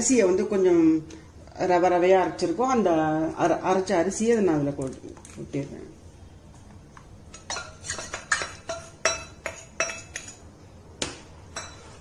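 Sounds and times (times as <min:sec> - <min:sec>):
metal spoon clinking on bowl: 0:07.3 - 0:10.4.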